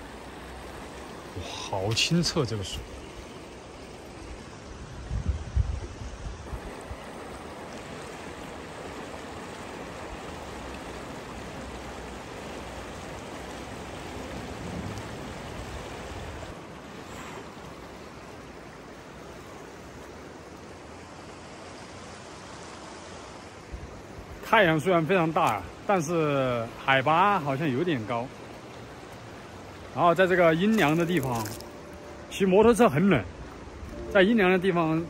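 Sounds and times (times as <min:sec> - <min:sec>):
river running: 0:00.0 - 0:35.0.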